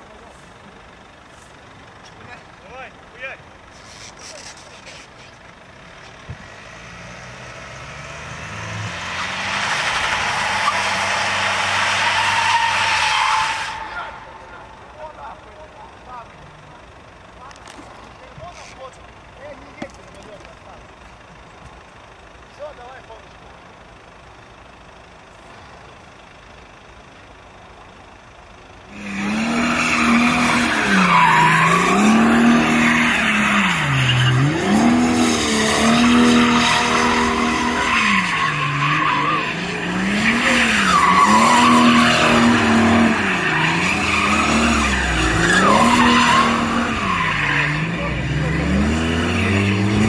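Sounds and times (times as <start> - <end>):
tyres squealing: 3.7 - 6.2, 9.1 - 16.4, 29.0 - 50.0
car engine revving: 5.8 - 21.0, 28.8 - 50.0.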